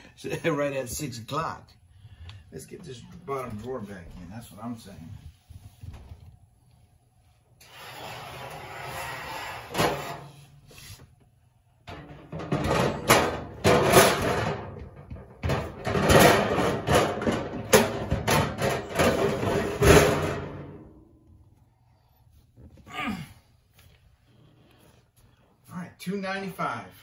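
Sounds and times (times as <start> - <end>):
metal drawer scraping and rattling: 7.7 - 10.4, 11.9 - 14.8, 15.4 - 20.7.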